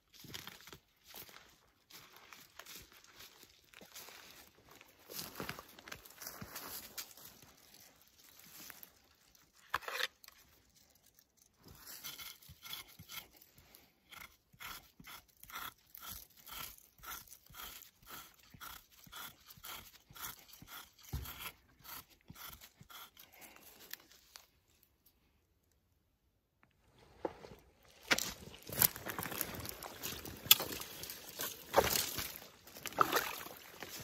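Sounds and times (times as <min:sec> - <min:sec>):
knife scraping tree bark: 0:09.6 - 0:10.4, 0:11.6 - 0:24.5, 0:28.0 - 0:34.0.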